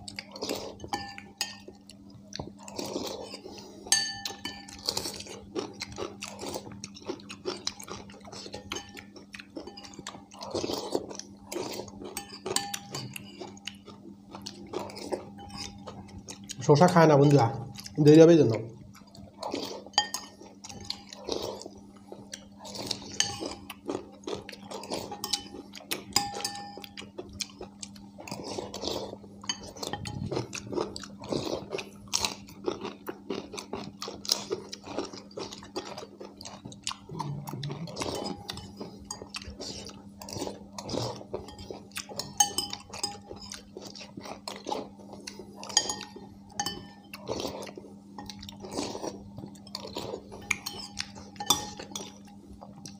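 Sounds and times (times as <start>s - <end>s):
chewing: 0.0s - 18.2s, 18.8s - 52.9s
steady low hum: 0.0s - 52.9s
spoons clinking on ceramic bowls: 0.8s - 1.7s, 3.9s - 5.0s, 8.3s - 10.2s, 12.1s - 13.5s, 19.9s - 21.1s, 23.1s - 23.7s, 25.1s - 27.0s, 29.4s - 30.3s, 41.4s - 43.6s, 45.6s - 47.4s, 49.6s - 52.3s.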